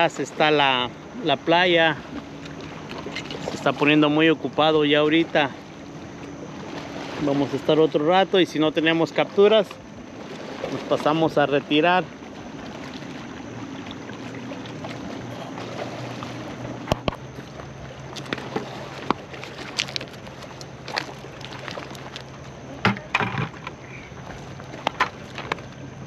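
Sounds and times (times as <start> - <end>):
low engine hum: 0.0 - 26.0
footsteps on gravel: 18.1 - 22.5.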